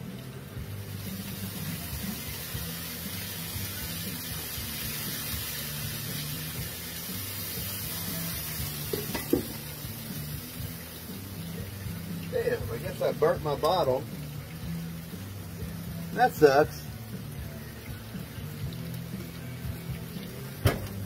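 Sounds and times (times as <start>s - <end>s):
water sizzling on hot griddle: 0.0s - 21.0s.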